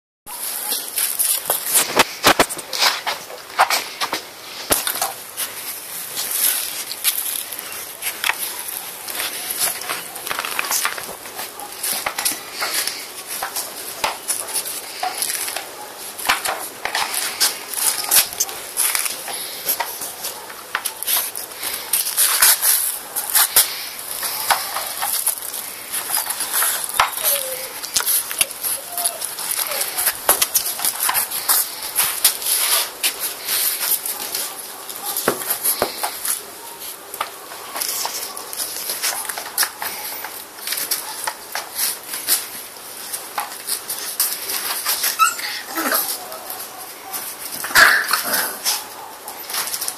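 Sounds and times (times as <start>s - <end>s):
puppies play-fighting: 0.3s - 49.9s
dog claws clicking on tiles: 6.1s - 45.3s.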